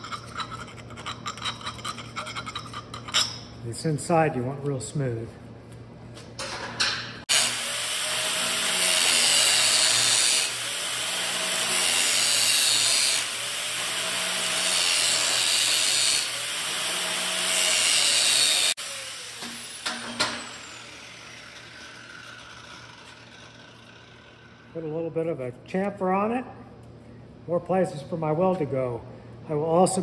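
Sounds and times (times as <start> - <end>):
power tool deburring steel tube: 7.2 - 24.8.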